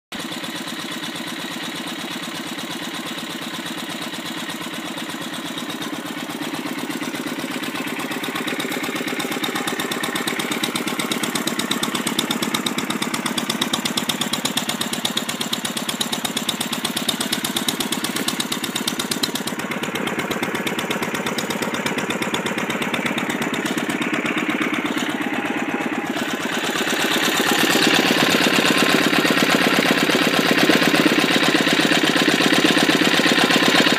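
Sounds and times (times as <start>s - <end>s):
stationary engine running: 0.1s - 33.9s.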